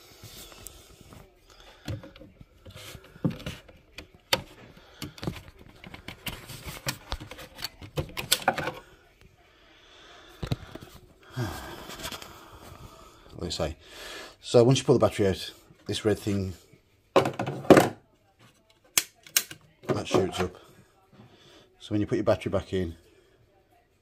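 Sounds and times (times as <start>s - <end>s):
plastic clicks and knocks: 3.2s - 8.8s.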